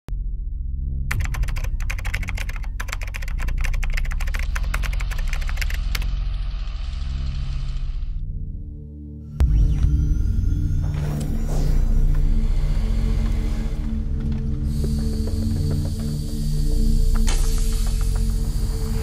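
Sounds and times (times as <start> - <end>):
keyboard typing clicks: 1.1 - 6.1
low steady drone: 5.8 - 19.0.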